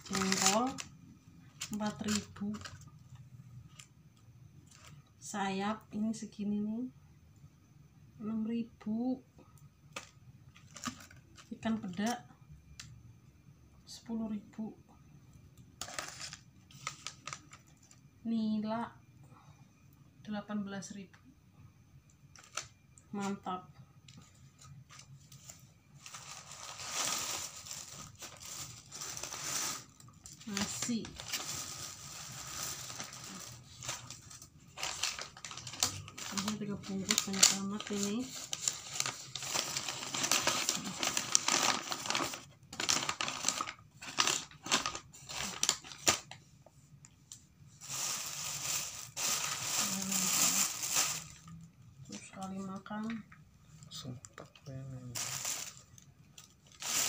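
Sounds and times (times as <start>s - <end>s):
paper crinkling: 0.0s - 0.9s, 15.8s - 17.9s, 24.6s - 46.4s, 55.2s - 57.0s.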